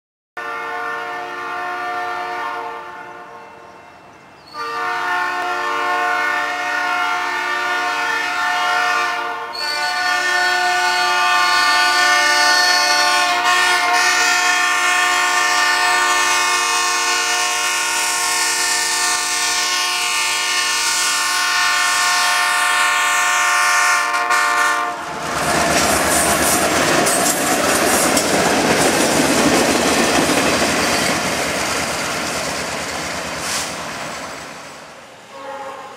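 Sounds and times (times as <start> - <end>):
locomotive horn blasts: 0.4 - 3.8, 4.5 - 25.1, 35.3 - 35.9
train wheels clacking over rail joints: 25.1 - 34.6.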